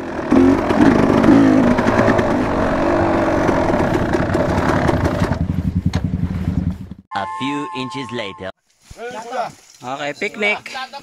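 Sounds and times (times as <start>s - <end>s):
dirt bike engine revving: 0.0s - 6.8s.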